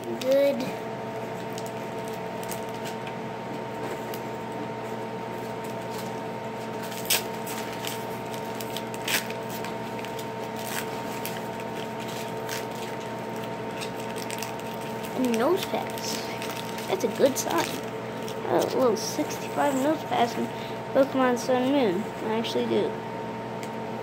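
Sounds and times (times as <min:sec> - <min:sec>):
electrical hum: 0:00.0 - 0:24.0
card pack crinkling: 0:01.4 - 0:03.1, 0:06.8 - 0:18.8.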